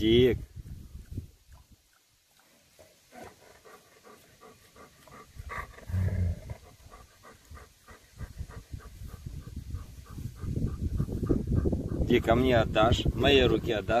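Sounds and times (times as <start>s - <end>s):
dog panting: 2.8s - 14.0s.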